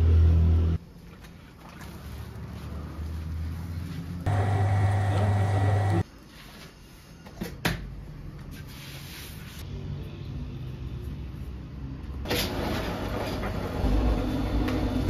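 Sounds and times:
workshop noise: 0:03.6 - 0:06.1
electric motor humming: 0:04.3 - 0:06.0.

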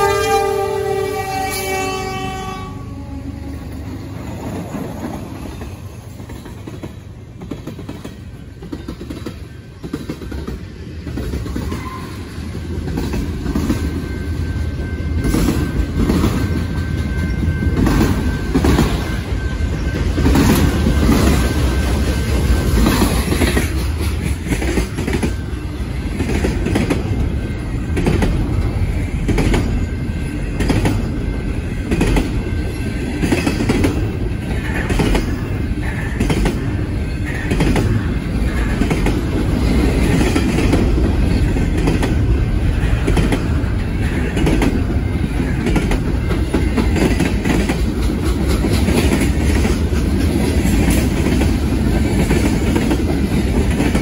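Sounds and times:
locomotive horn: 0:00.0 - 0:03.8
train rumble: 0:00.0 - 0:54.0
wheels clacking over rail joints: 0:03.6 - 0:54.0.

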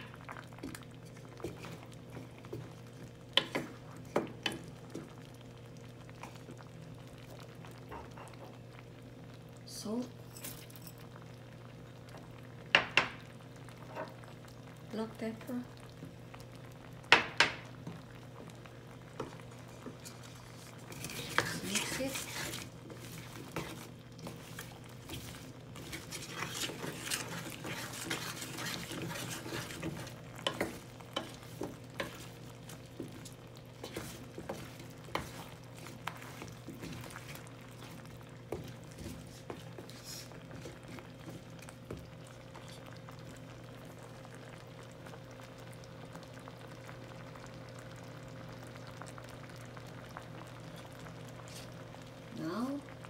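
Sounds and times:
spatula scraping a metal pot: 0:20.9 - 0:24.4, 0:25.2 - 0:31.4.

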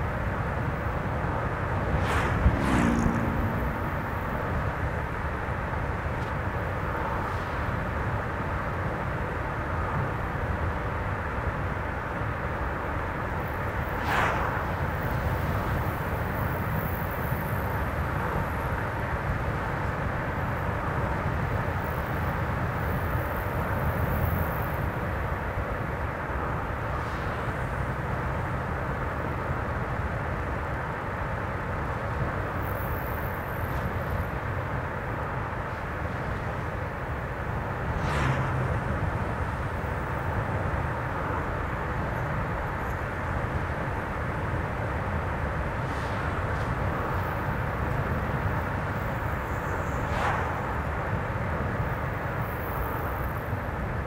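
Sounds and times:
tyres on road: 0:00.0 - 0:54.0
whoosh: 0:01.8 - 0:04.5, 0:13.9 - 0:15.3, 0:49.8 - 0:51.3.

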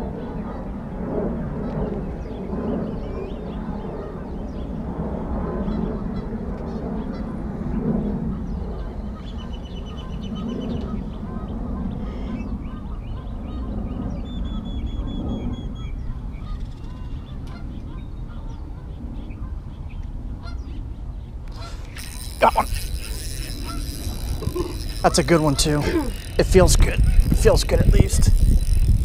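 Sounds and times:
rapid high-pitched ticks: 0:21.5 - 0:29.0.

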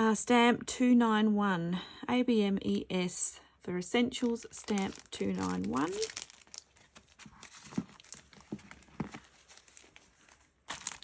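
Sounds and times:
plastic packaging crinkling: 0:04.2 - 0:11.0.

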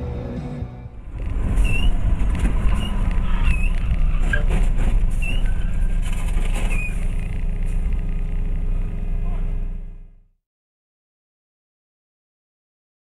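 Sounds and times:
road and engine rumble: 0:00.0 - 0:10.3.

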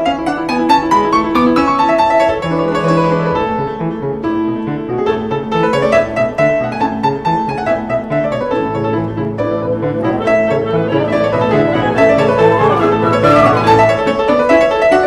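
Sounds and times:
piano background music: 0:00.0 - 0:15.0
held low note: 0:09.4 - 0:14.0.

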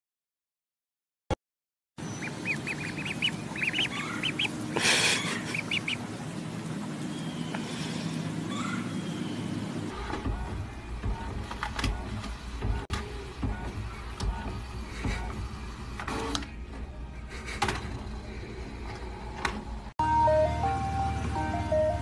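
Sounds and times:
ducklings peeping: 0:02.0 - 0:06.2
low steady hum: 0:02.0 - 0:08.5.

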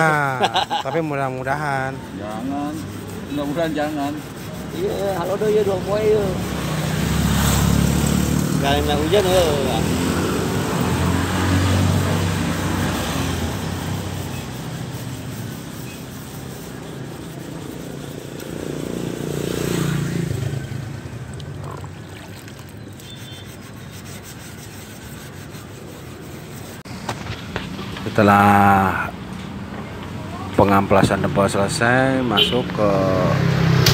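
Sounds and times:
sandpaper rubbing on filler: 0:00.0 - 0:20.8, 0:22.9 - 0:26.9
vehicles passing: 0:00.0 - 0:33.9.

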